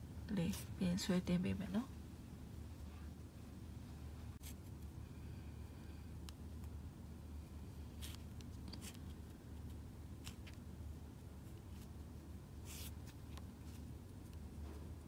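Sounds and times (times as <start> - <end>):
steady low hum: 0.0 - 15.0
crochet hook scratchy strokes: 12.6 - 14.4.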